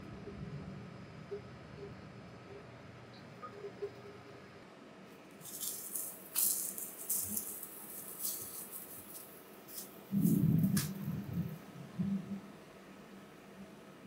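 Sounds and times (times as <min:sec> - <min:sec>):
galette sizzling in a pan: 0:05.4 - 0:09.9.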